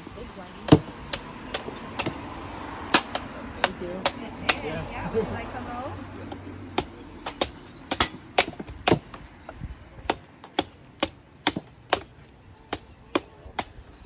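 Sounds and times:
machete chopping coconut husk: 0.6s - 4.8s, 6.3s - 9.2s, 10.0s - 13.8s.

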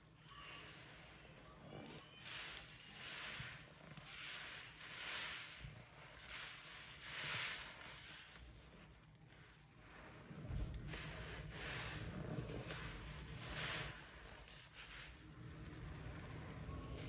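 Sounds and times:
sponges squelching in suds: 0.6s - 17.0s.

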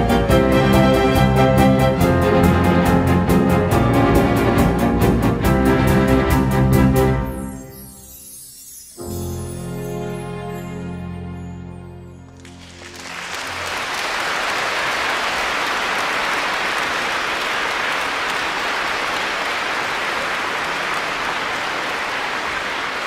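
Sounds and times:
audience applauding: 12.3s - 23.0s.

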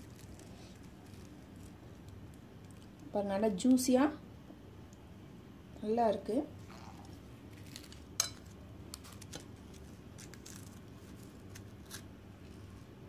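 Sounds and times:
crackling pastry being broken: 0.0s - 3.1s, 6.7s - 12.2s.

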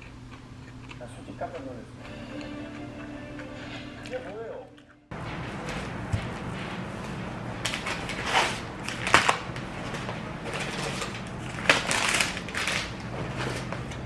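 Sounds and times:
paper wrapping rustling: 5.2s - 14.0s.

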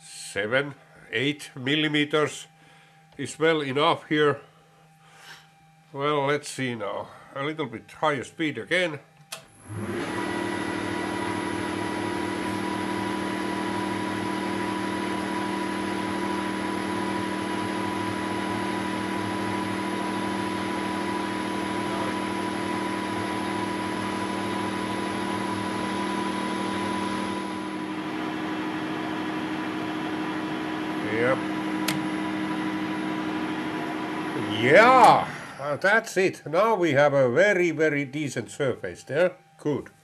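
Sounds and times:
lathe humming and whining: 9.4s - 36.8s
high tone: 34.4s - 40.0s.

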